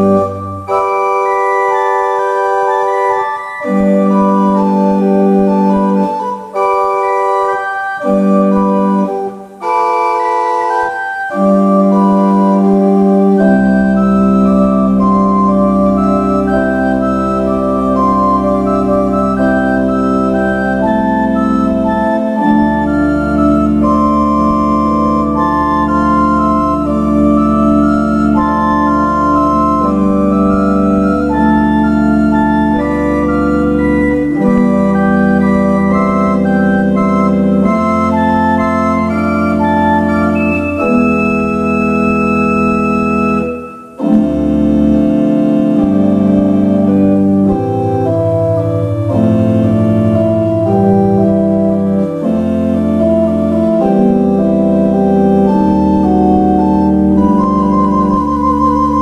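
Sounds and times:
pipe organ playing chords: 0.0s - 59.0s.

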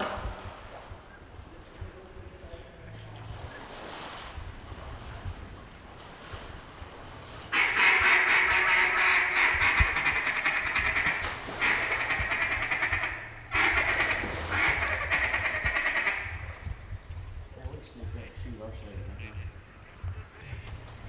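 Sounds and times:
ducks quacking: 7.4s - 16.9s, 18.0s - 21.0s.

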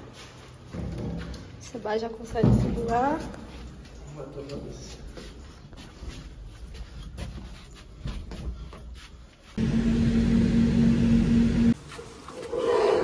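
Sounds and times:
elevator electric hum: 9.6s - 11.8s.

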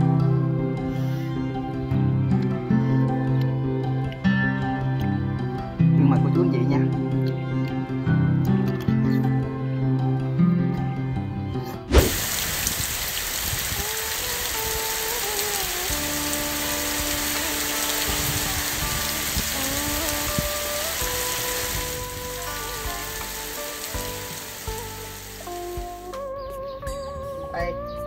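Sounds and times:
background music melody: 0.0s - 28.0s
heavy rain pouring: 11.9s - 26.1s.

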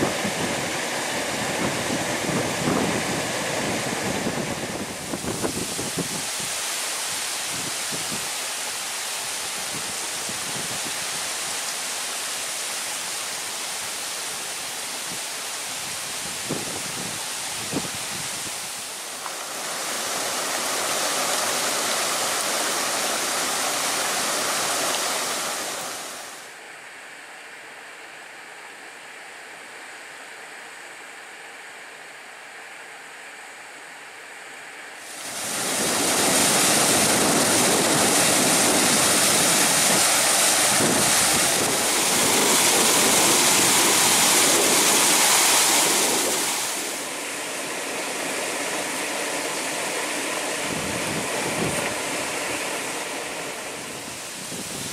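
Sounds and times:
wind and rain rushing: 0.0s - 27.0s, 34.8s - 54.9s.

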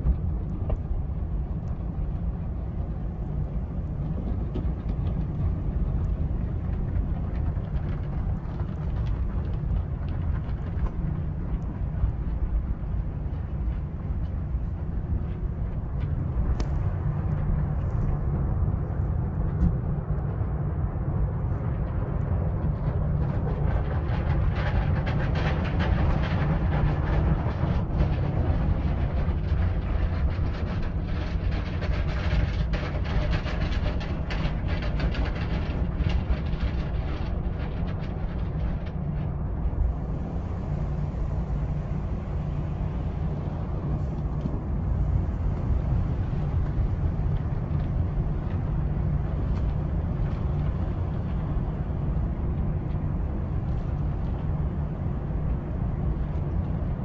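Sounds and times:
car wash machinery rumble: 0.0s - 57.0s.

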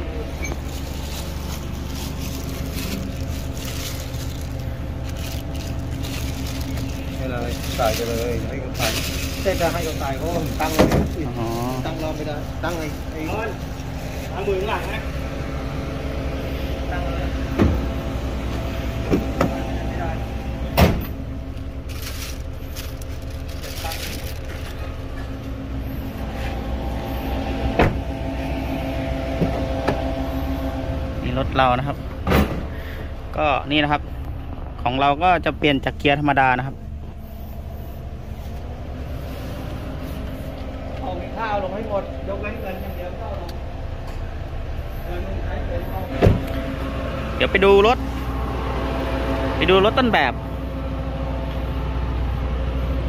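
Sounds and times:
steady low hum: 0.0s - 53.0s
vehicle engine idling: 0.0s - 53.0s
plastic bag rustling: 0.5s - 14.8s, 21.8s - 25.0s
car door shutting: 10.8s - 11.1s, 20.7s - 21.2s, 27.7s - 28.1s, 46.1s - 46.6s.

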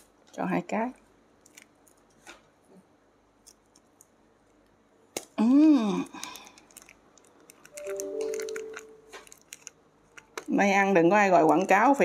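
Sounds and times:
plastic bag crinkling: 1.4s - 2.3s, 6.0s - 12.0s.

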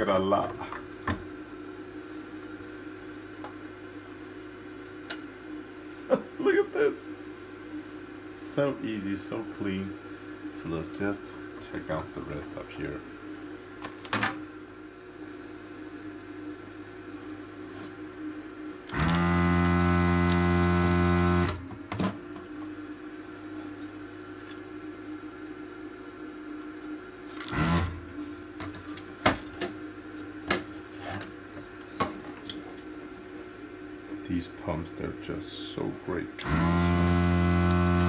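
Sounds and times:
steady low hum: 0.0s - 38.0s
vacuum pump running: 0.0s - 38.0s.

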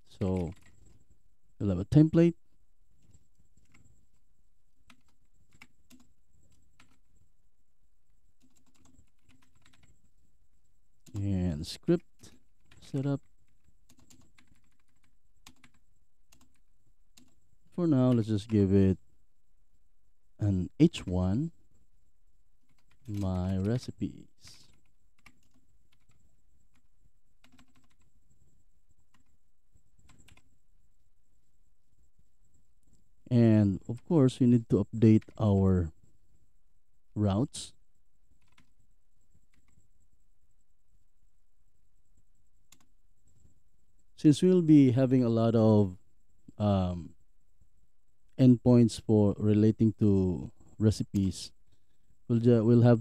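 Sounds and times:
faint high whine: 0.0s - 53.0s
faint keyboard keystrokes: 22.6s - 23.8s, 24.7s - 28.1s, 38.4s - 38.8s.

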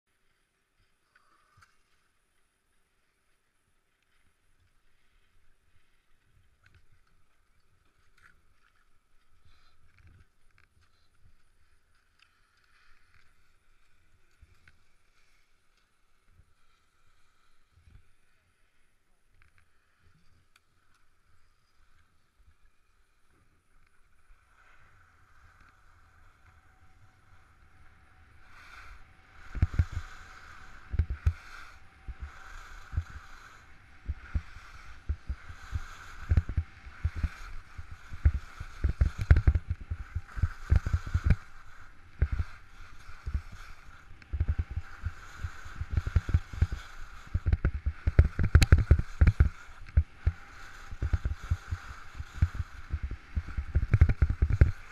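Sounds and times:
skis scraping on snow: 21.0s - 54.9s
wind buffeting microphone: 26.6s - 54.9s.

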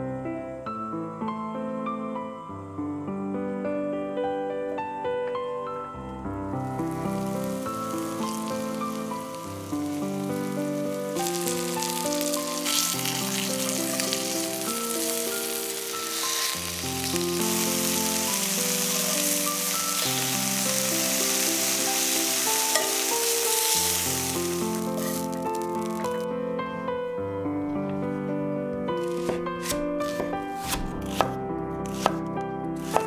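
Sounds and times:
soft background music: 0.0s - 33.0s
chicken sizzling in oil: 6.8s - 26.2s.

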